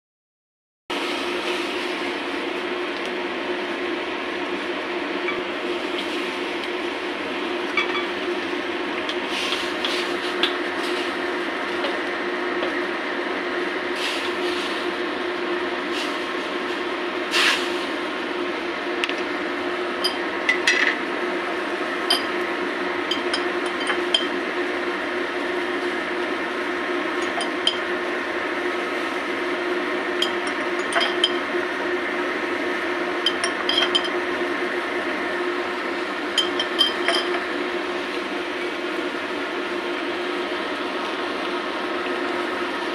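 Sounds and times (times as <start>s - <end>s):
liquid boiling and bubbling: 0.9s - 42.9s
steady hum: 0.9s - 42.9s.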